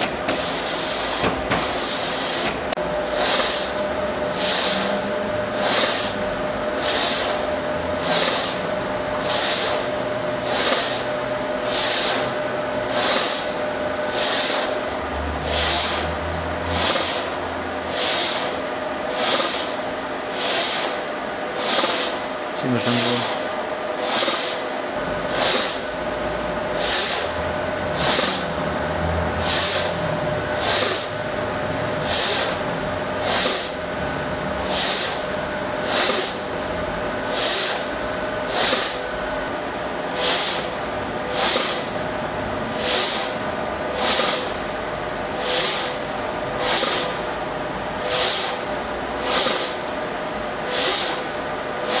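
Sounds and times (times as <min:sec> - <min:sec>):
steady machine hum: 0:00.0 - 0:52.0
machine slide whooshing: 0:00.4 - 0:21.0, 0:26.7 - 0:33.8.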